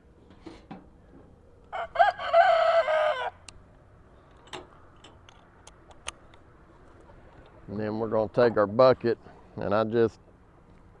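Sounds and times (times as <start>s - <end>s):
rooster crowing: 1.7s - 3.5s.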